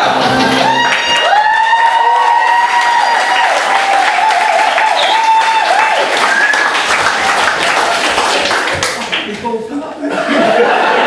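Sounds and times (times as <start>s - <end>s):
audience applauding: 0.0s - 9.6s
high wavering whoop: 0.5s - 6.6s.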